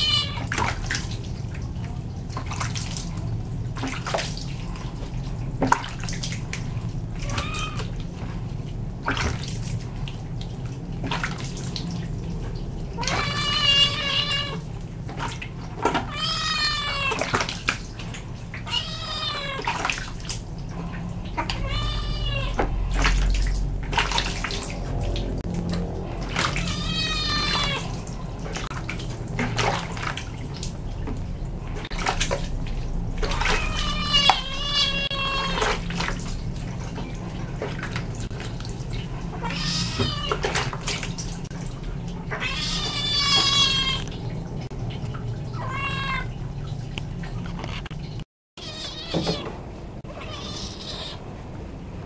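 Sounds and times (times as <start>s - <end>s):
water splashing: 0.0s - 51.3s
kitten yowling: 21.4s - 22.6s, 26.6s - 27.9s, 33.3s - 35.7s, 48.6s - 49.4s, 50.1s - 51.2s.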